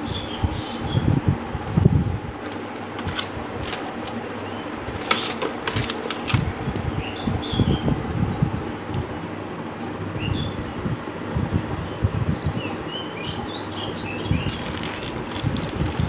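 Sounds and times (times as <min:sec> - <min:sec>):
plastic packaging crinkling: 0:14.4 - 0:16.0.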